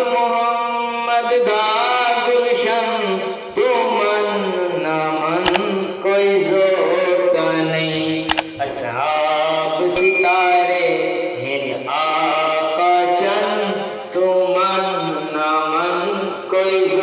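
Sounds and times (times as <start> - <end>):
man singing into a microphone: 0.0 - 17.0
sharp clicks: 5.5 - 5.7, 8.3 - 8.5.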